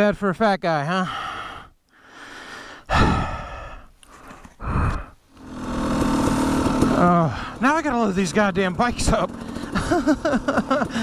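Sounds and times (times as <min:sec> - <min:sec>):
man breathing heavily and sighing: 0:01.0 - 0:05.3, 0:07.0 - 0:07.6.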